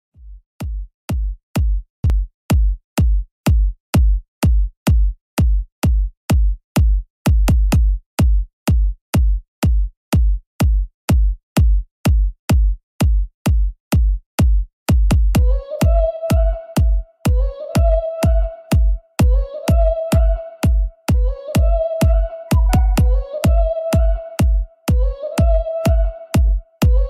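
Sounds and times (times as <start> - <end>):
electronic kick drum beat: 0.2 - 27.0.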